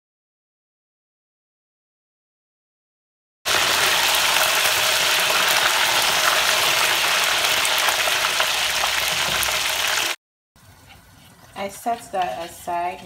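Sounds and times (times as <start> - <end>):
chicken wings deep-frying in oil: 3.5 - 13.0.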